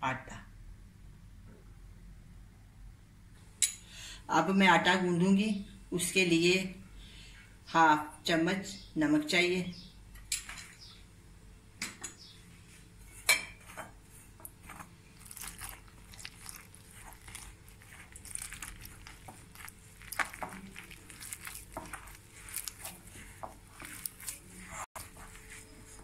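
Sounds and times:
hand mixing flour in bowl: 14.2 - 26.0.

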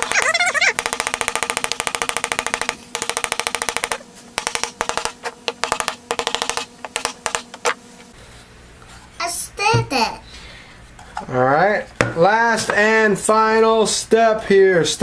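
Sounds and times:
machine-gun fire sound effect: 0.0 - 6.5.

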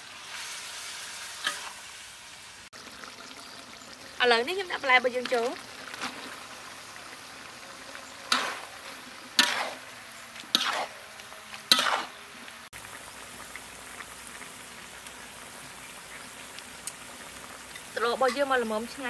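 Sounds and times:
scraping strokes in a wok: 0.0 - 2.7, 5.2 - 12.7
stir-fry sizzling in a wok: 0.0 - 19.0.

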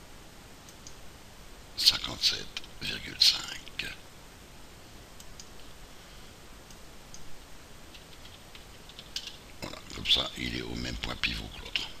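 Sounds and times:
steady low hiss: 0.0 - 12.0
faint mouse and keyboard clicks: 0.6 - 1.0, 5.2 - 5.7, 7.9 - 9.4.

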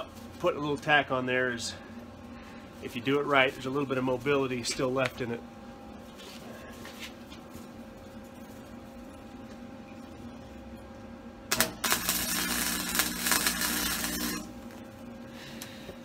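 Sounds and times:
low steady hum: 0.0 - 16.0
welding arc crackling: 11.4 - 15.7.

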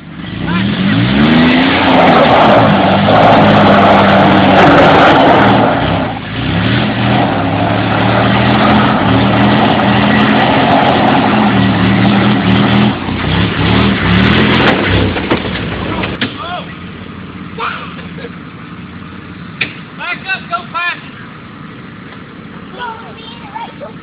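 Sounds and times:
engine revving hard under load: 0.1 - 16.2.

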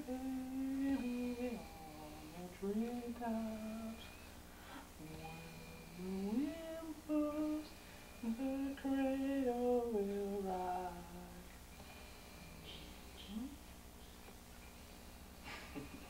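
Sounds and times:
person humming: 0.0 - 4.2, 5.0 - 11.5, 12.4 - 13.6.

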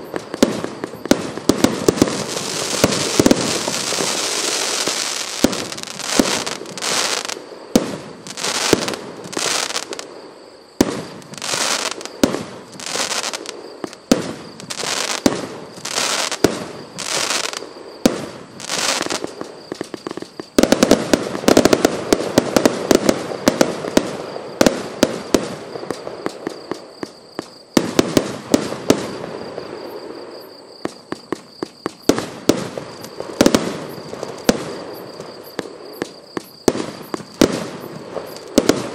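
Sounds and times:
rapid firework crackling: 0.2 - 10.1, 10.8 - 29.2
firework shells bursting: 10.9 - 24.0.

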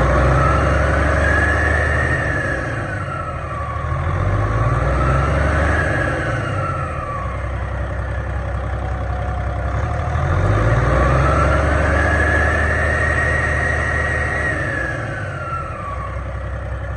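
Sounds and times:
diesel engine revving: 0.0 - 16.9
engine whine: 0.0 - 16.9.

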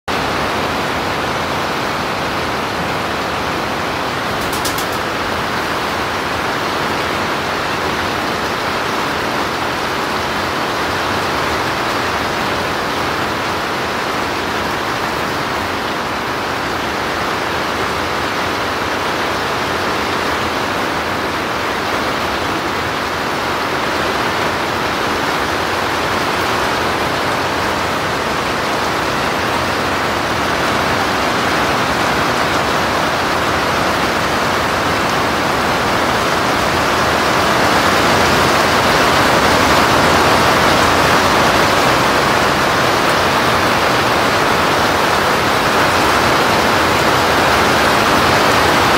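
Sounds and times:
steady rushing noise: 0.6 - 8.8.

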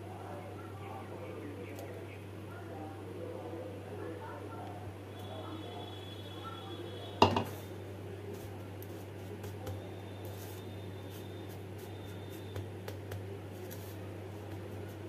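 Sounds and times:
breadcrumbs rustling: 7.5 - 15.0.

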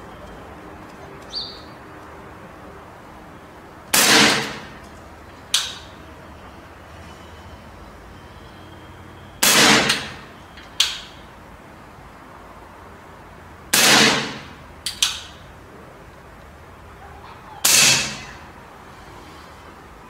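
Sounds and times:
air rifle shots: 3.9 - 4.8, 9.4 - 11.2, 13.7 - 15.4, 17.6 - 18.4
sharp click: 9.9 - 11.2, 14.8 - 15.4.

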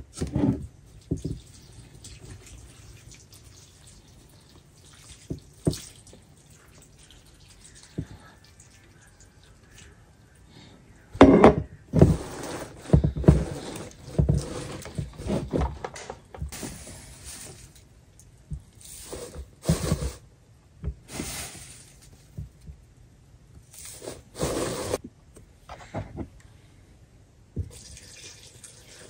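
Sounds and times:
wet paper rustling and scraping: 16.5 - 17.9.

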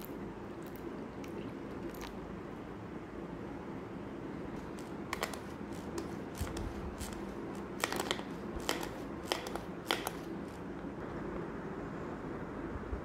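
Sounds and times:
food chopper blades churning: 4.6 - 10.7.

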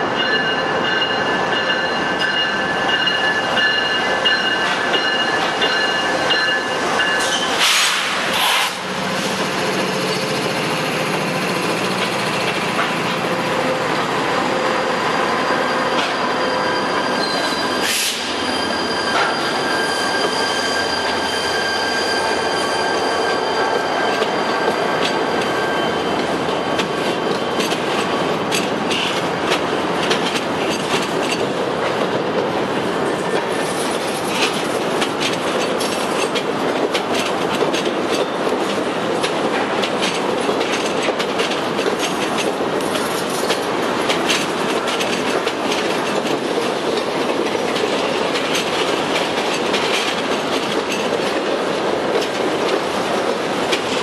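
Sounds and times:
train wheels clicking at rail joints: 0.1 - 54.0
high wheel squeal: 4.4 - 8.9, 13.4 - 27.6.

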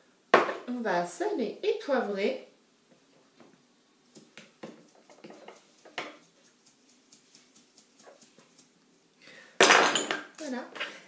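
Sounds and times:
salt and pepper shaken over bowl: 4.1 - 9.1.

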